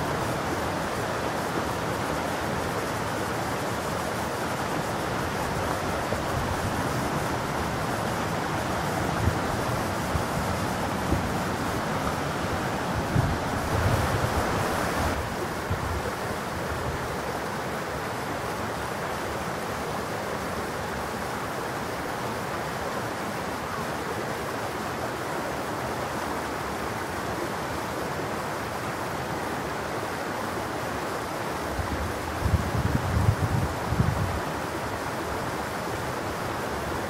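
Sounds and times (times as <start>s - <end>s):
stream babbling over gravel: 0.0s - 17.2s.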